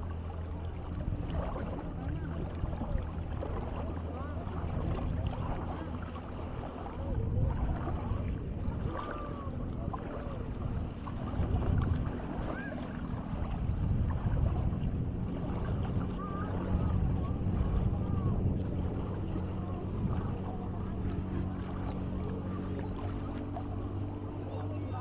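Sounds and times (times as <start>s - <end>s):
low hum and rumble: 0.0s - 25.0s
distant voices calling out: 1.7s - 25.0s.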